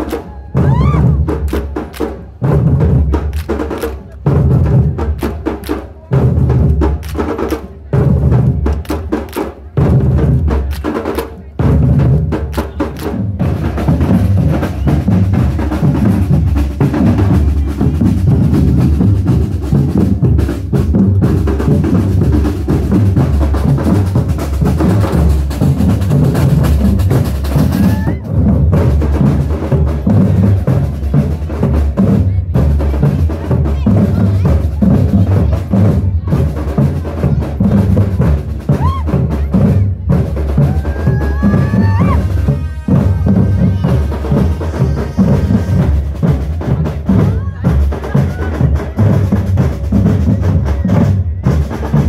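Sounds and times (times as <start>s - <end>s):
snare drums: 0.0s - 52.0s
surdo bass drums: 0.0s - 52.0s.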